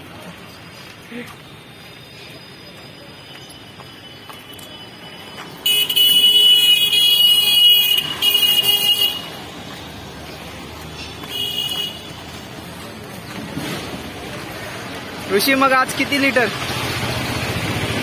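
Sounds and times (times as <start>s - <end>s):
street noise: 0.0s - 18.0s
high-pitched vehicle horn honking: 5.6s - 9.3s, 11.3s - 12.0s.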